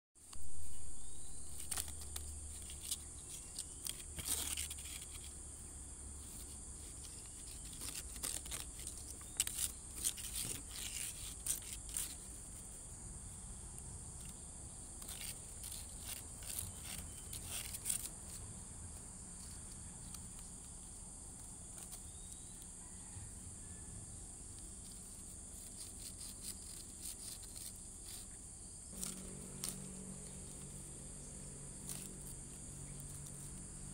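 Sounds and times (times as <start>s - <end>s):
cat rustling dry palm fronds: 0.2s - 13.4s, 24.7s - 33.9s
insects chirring: 0.2s - 33.9s.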